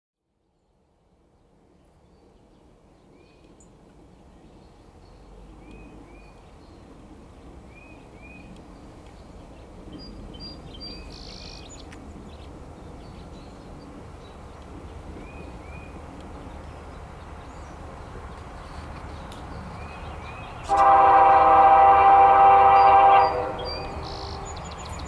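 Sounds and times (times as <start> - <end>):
distant freight train rumble: 3.8 - 25.0
birds chirping: 9.2 - 25.0.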